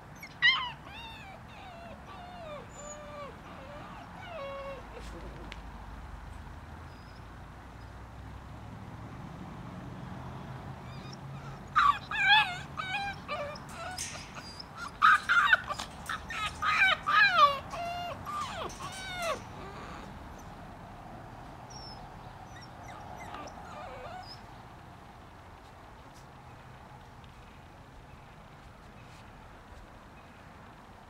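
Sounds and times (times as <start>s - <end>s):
puppies yipping and whining: 0.1s - 5.2s, 10.9s - 20.6s, 21.7s - 24.5s.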